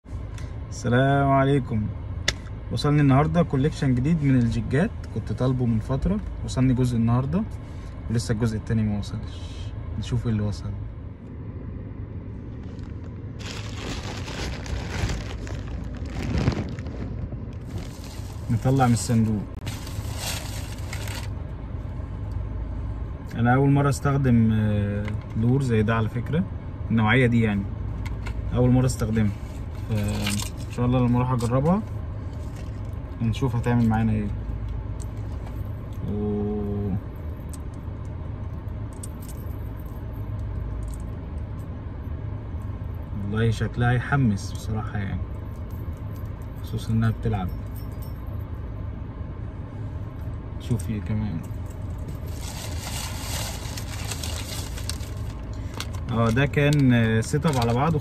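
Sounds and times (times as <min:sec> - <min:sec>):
low steady hum: 0:00.0 - 0:58.0
car idling rumble: 0:00.1 - 0:58.0
plastic bag crinkling: 0:12.6 - 0:21.3, 0:52.2 - 0:56.4.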